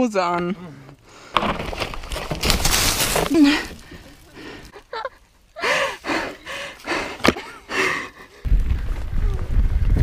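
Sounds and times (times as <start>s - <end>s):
tyres on dirt trail: 0.0s - 10.0s
rider breathing hard: 0.7s - 1.6s, 3.3s - 4.8s, 5.6s - 8.5s
wind rumble on camera: 8.4s - 10.0s.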